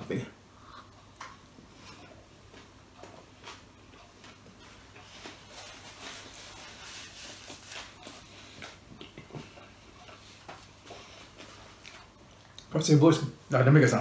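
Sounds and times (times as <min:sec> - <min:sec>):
chewing fries: 0:00.6 - 0:12.7.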